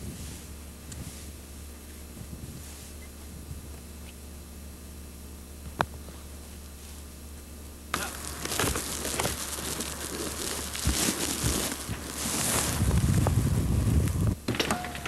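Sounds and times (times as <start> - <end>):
wind buffeting microphone: 0.0 - 1.4, 2.0 - 3.9, 10.7 - 14.5
low electrical hum: 0.0 - 15.0.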